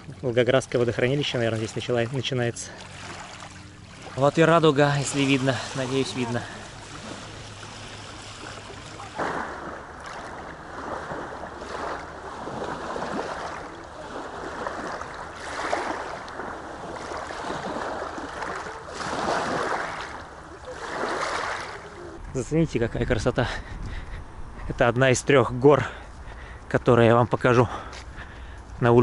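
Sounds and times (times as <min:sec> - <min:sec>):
waves washing over pebbles: 0:00.0 - 0:22.3.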